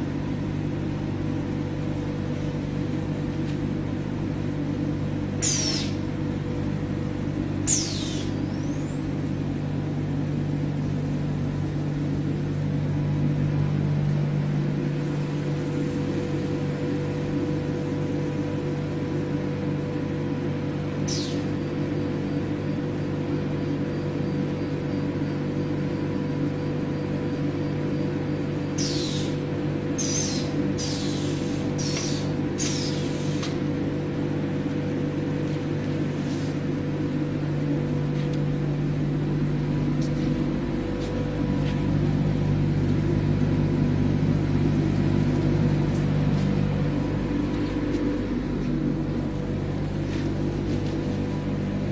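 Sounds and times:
filling machine humming: 0:00.0 - 0:51.9
compressed air hisses: 0:05.4 - 0:06.0, 0:28.8 - 0:29.4, 0:30.0 - 0:33.5.

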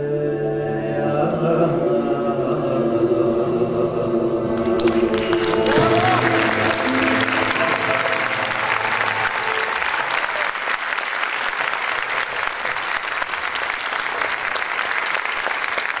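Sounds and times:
ensemble holding last note: 0:04.1 - 0:10.8
audience applauding: 0:04.6 - 0:16.0.

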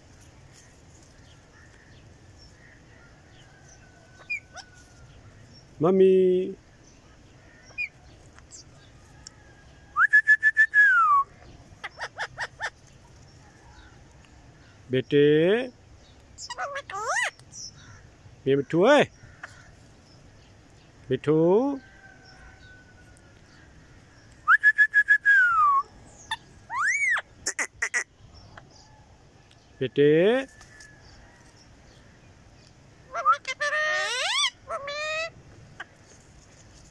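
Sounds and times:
parakeet whistling: 0:26.7 - 0:27.2, 0:33.1 - 0:35.2.

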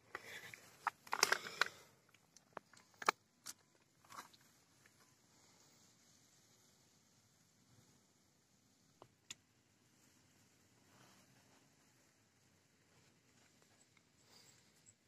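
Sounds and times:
handling crackles and clicks: 0:00.1 - 0:05.1.

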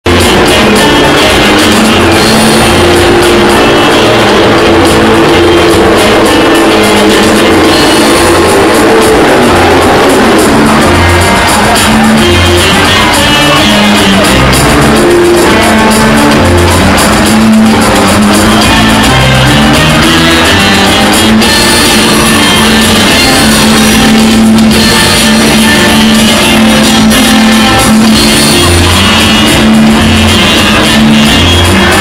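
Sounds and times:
loud music with low notes: 0:00.0 - 0:32.0.

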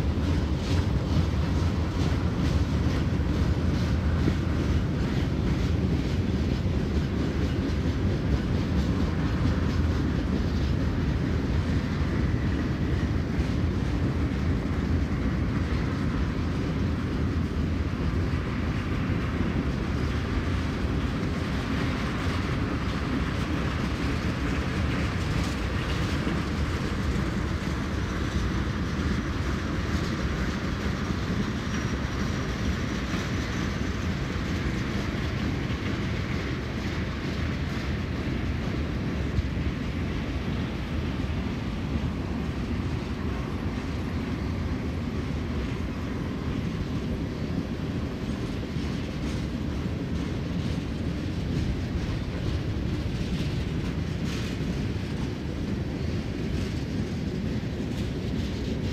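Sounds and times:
freight train wheels rumbling: 0:00.0 - 0:58.9.

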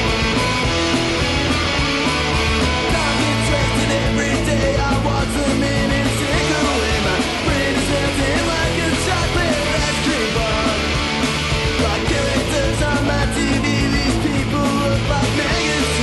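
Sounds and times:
electric guitar: 0:00.0 - 0:16.0
loud rock music: 0:00.0 - 0:16.0
person singing: 0:02.8 - 0:10.9, 0:11.7 - 0:16.0.

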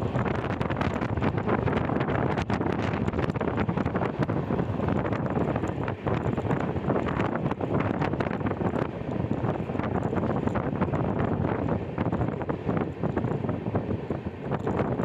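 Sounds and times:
train wheels rumbling on track: 0:00.0 - 0:15.0
wind buffeting microphone: 0:00.0 - 0:15.0.

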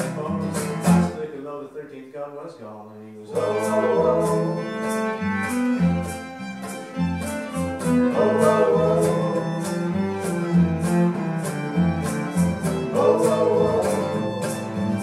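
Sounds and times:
acoustic bass guitar: 0:00.0 - 0:01.4, 0:03.1 - 0:15.0
strummed acoustic guitar: 0:00.0 - 0:01.4, 0:03.3 - 0:15.0
cello: 0:03.3 - 0:15.0
fiddle: 0:03.3 - 0:15.0.

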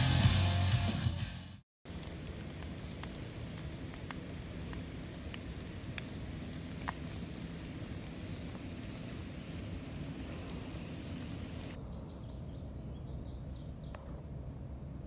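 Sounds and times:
falling water drops ticking: 0:01.9 - 0:11.8
low outdoor background noise: 0:01.9 - 0:15.0.

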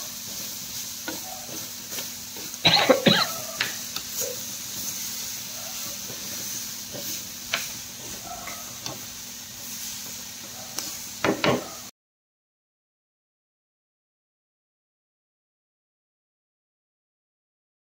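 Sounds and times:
food sizzling in a frying pan: 0:00.0 - 0:11.9.

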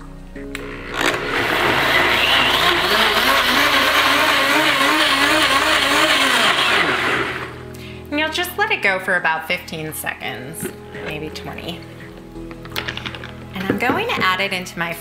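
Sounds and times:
blender motor whining: 0:00.5 - 0:07.6.

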